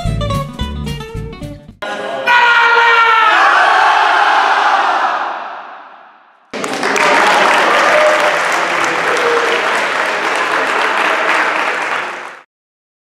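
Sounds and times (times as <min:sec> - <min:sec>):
people calling out: 0:01.8 - 0:05.0
crowd applauding: 0:06.5 - 0:12.5.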